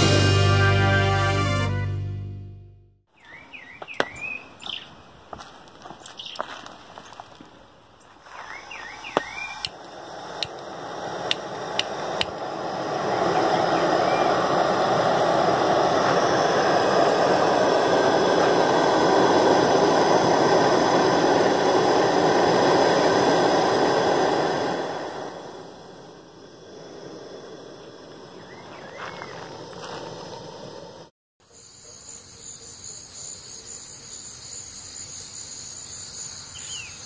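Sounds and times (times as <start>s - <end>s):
gas burner hissing: 8.5s - 31.1s.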